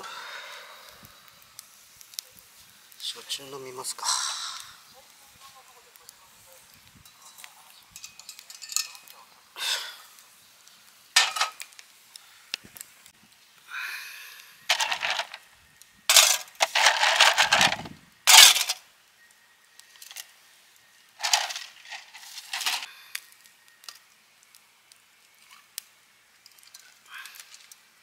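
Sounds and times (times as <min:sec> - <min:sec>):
ice cubes clinking in metal cup: 0:08.0 - 0:09.0, 0:11.2 - 0:11.6, 0:14.7 - 0:15.4, 0:16.1 - 0:18.8, 0:21.2 - 0:22.9.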